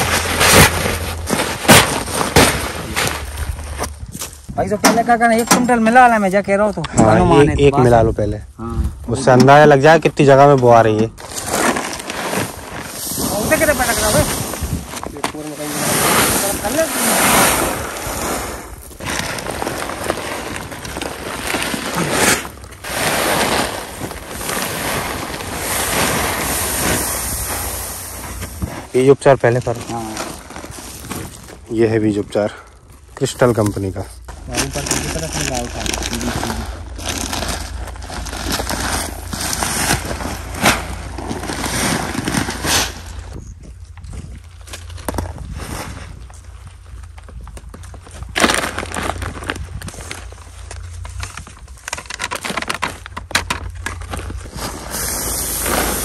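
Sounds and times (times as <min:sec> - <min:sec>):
plastic sack rustling: 0:00.0 - 0:04.5, 0:11.2 - 0:32.3, 0:33.2 - 0:43.4, 0:44.2 - 0:56.0
seed pouring onto a heap: 0:21.6 - 0:28.8, 0:54.5 - 0:56.0.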